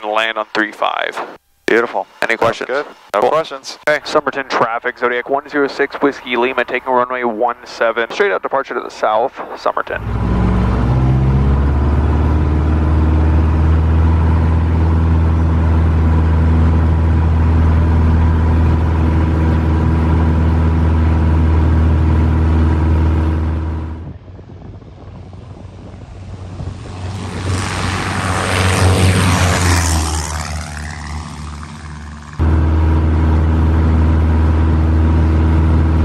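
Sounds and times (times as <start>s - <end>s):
propeller airplane engine drone: 0.0s - 36.0s
airplane flying past: 10.0s - 36.0s.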